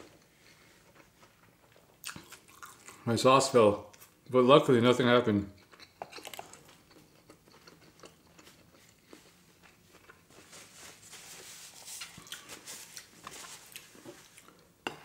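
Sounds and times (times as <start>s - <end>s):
faint chewing: 0.1s - 3.1s, 5.5s - 10.7s, 11.8s - 14.7s
paper napkin rustling: 10.3s - 14.4s.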